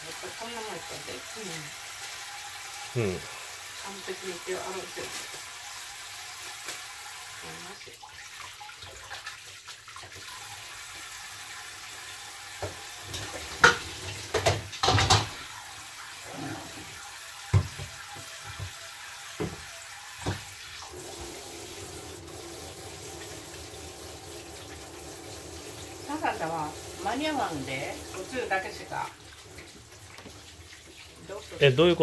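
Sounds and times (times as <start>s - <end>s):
tap water running into sink: 0.0s - 32.0s
sharp knocks and clatters: 13.6s - 15.4s.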